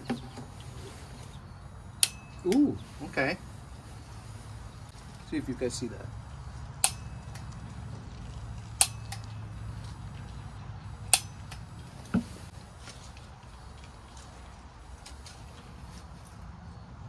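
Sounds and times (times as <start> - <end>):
piezo igniter snapping: 1.9 - 2.7, 6.8 - 7.6, 8.6 - 9.4, 11.0 - 12.2.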